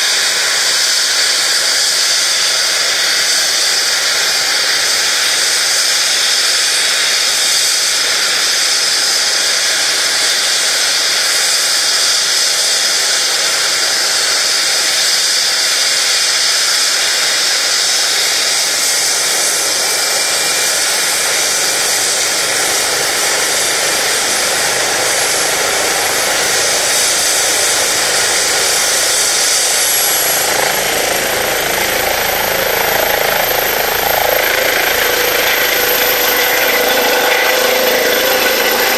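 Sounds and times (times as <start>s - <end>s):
helicopter turbines whining: 0.0s - 38.9s
thin high tone: 29.1s - 38.9s.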